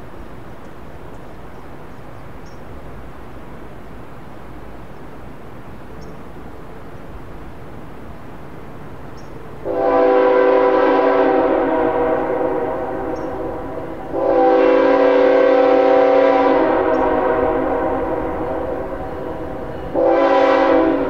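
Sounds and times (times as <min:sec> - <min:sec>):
locomotive air horn blasts: 0:09.6 - 0:21.0.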